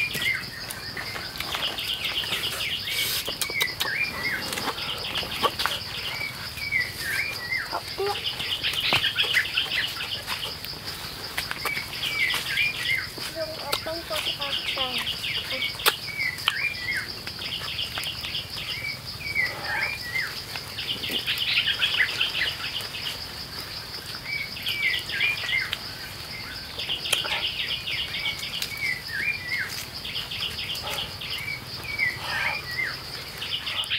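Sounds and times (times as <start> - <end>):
pulsing insect drone: 0.0 - 33.9
bird chirps and trills: 26.4 - 33.9.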